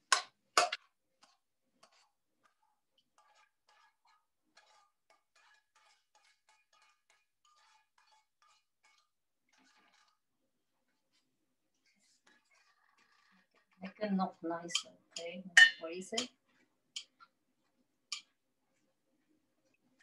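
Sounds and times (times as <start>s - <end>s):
frying pan and utensils clinking: 14.7s - 16.3s.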